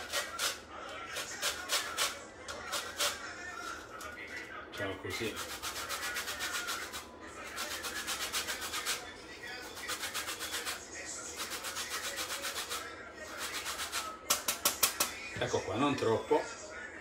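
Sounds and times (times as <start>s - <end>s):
peel grated on metal grater: 0.0s - 3.2s, 5.1s - 9.0s, 9.7s - 10.8s, 11.4s - 15.0s.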